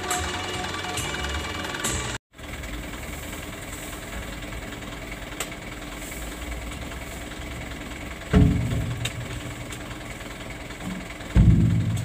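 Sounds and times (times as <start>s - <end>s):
truck engine idling: 0.0s - 12.0s
heavy thud in truck bed: 8.3s - 9.3s, 11.3s - 12.0s.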